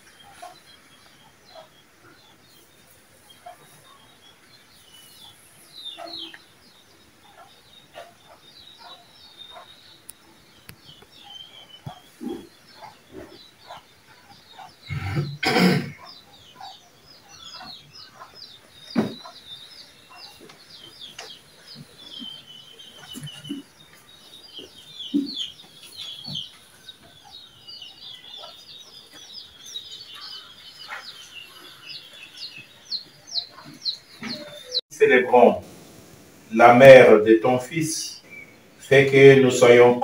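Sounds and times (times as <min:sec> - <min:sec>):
small birds chirping: 0:00.0 - 0:40.0
handling knocks: 0:19.0 - 0:19.3.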